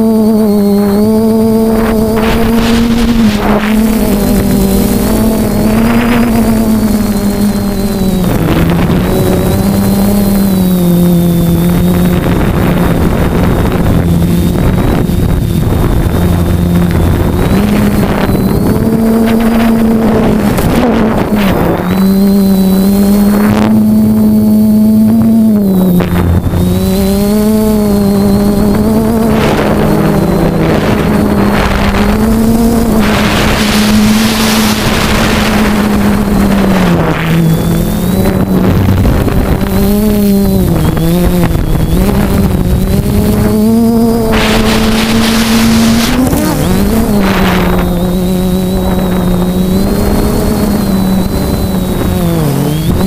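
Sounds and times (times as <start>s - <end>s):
rushing air noise: 0.0s - 24.4s, 25.1s - 53.0s
drone motors buzzing: 0.0s - 53.0s.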